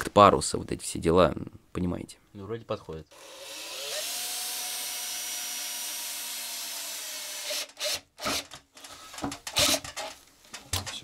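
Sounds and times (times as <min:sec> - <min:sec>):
cordless drill whirring: 0:03.1 - 0:08.6.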